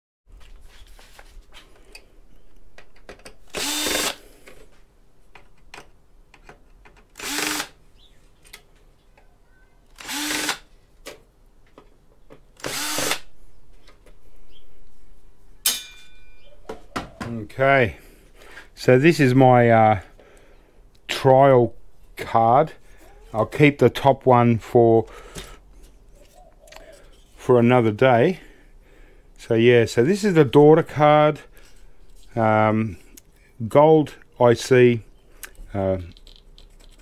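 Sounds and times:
power drill bursts: 0:03.5 - 0:04.2, 0:07.2 - 0:07.8, 0:10.0 - 0:10.7, 0:12.6 - 0:13.3.

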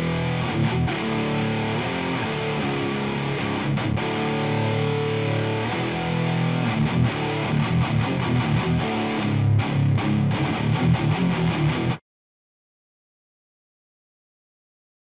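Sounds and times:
distorted electric guitar riff: 0:00.0 - 0:12.0.

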